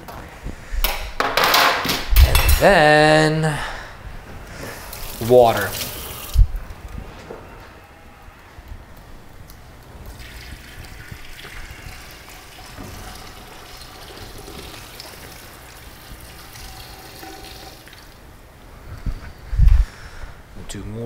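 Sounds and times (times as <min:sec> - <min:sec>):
water pouring into a pot: 0:04.7 - 0:06.5, 0:10.0 - 0:18.3.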